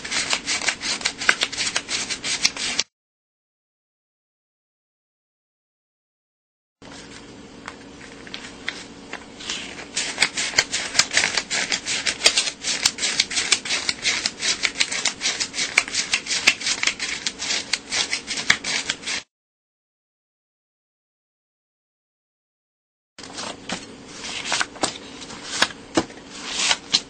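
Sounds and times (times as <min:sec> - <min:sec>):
paper bills being counted: 0:00.0 - 0:02.9, 0:08.3 - 0:19.3, 0:23.2 - 0:27.0.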